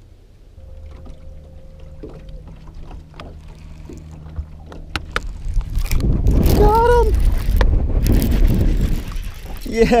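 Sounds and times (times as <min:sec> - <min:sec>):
electric motor low hum: 0:00.2 - 0:08.2
high motor whine: 0:00.4 - 0:08.0.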